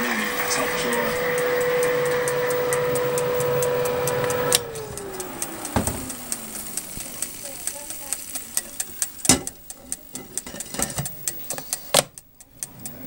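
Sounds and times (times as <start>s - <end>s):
fan motor spinning down: 0.0s - 13.0s
oven fan humming: 0.0s - 13.0s
light regular ticks: 0.8s - 13.0s
knock: 5.8s - 6.1s.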